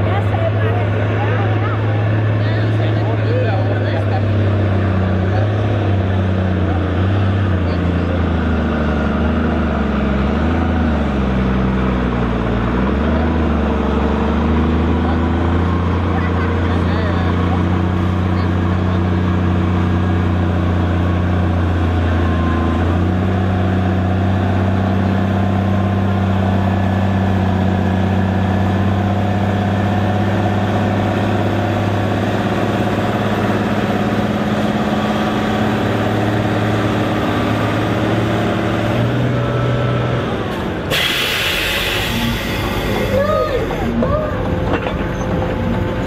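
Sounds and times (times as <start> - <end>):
tractor diesel engine under load: 0.0 - 46.0
sudden hissing: 40.9 - 43.4.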